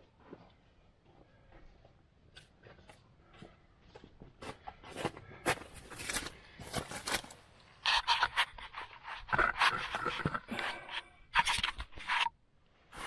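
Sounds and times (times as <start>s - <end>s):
heavy breathing: 7.8s - 11.6s.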